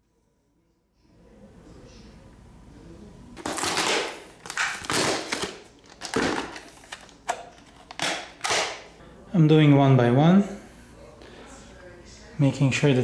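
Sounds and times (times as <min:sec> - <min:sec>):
plastic blister pack crinkling: 0:03.4 - 0:08.8.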